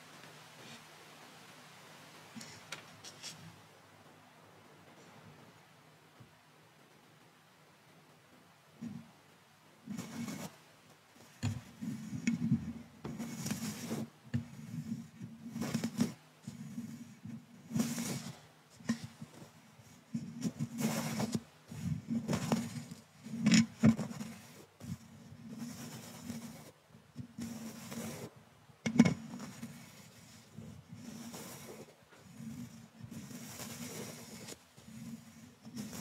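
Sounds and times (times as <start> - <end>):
paintbrush scratching microphone grille: 9.9 - 10.6, 11.2 - 36.0.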